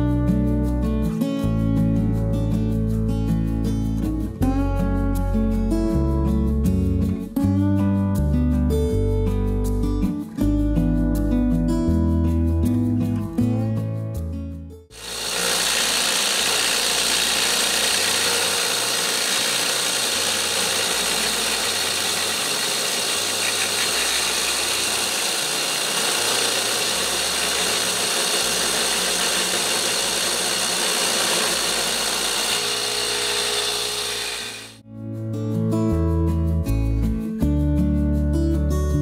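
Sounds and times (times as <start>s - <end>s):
chainsaw mill cutting through log: 15.0s - 34.8s.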